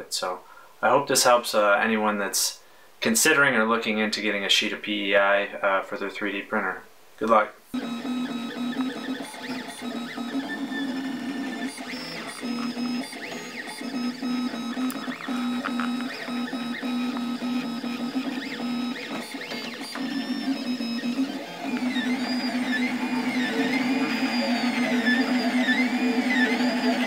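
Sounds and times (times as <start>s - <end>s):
stepper motors whining: 7.8s - 27.0s.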